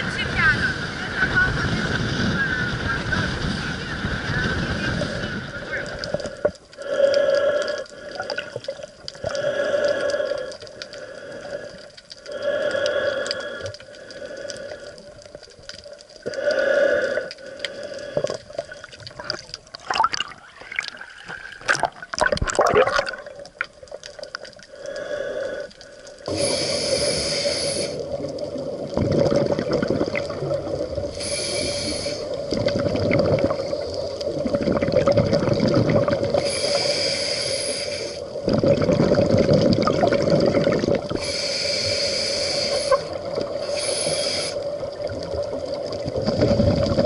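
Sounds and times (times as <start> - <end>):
exhaled bubbles rushing: 18.0 - 24.5, 28.0 - 31.2, 32.3 - 36.5, 38.4 - 41.2, 44.7 - 47.0
regulator inhalation hiss: 24.7 - 28.2, 31.0 - 32.4, 36.4 - 38.4, 41.2 - 44.8.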